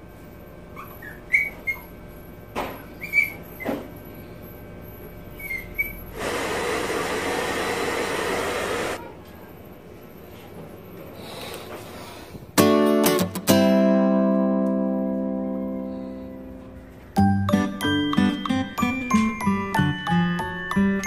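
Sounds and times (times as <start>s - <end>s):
short high squeaks: 5.3s - 6.2s
hair dryer blowing: 6.1s - 9.0s.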